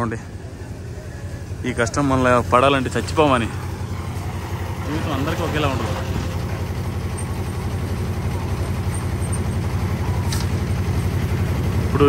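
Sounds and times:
heavy machinery engine droning: 0.0 - 12.0.

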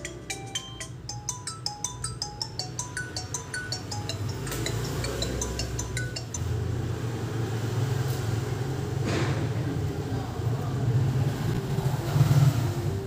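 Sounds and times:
phone ringtone chimes: 0.0 - 6.4.

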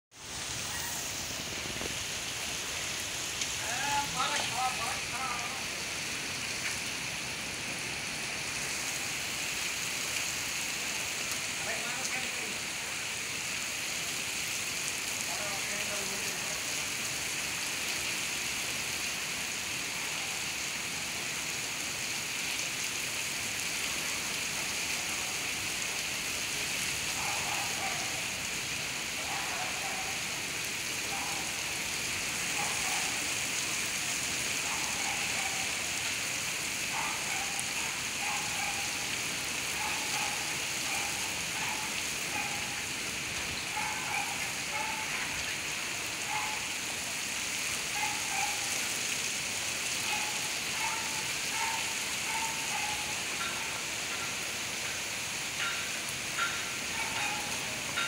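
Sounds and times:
heavy rain pouring onto paving: 0.1 - 58.0.

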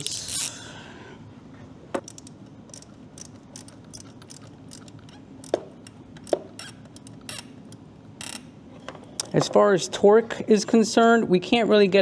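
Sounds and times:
hand ratchet clicking: 2.0 - 8.5.

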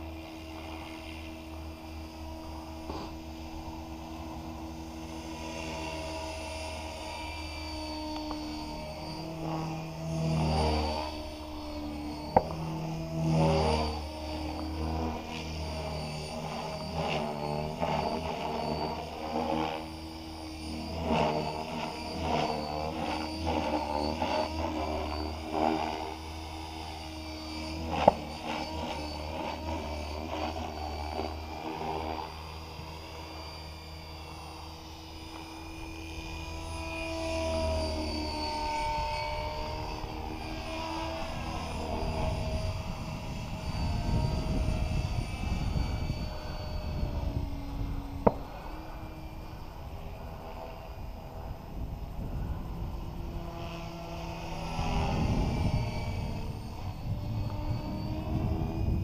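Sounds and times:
rc helicopter rotor whine: 0.0 - 59.0
wind rumble on microphone: 38.5 - 59.0.

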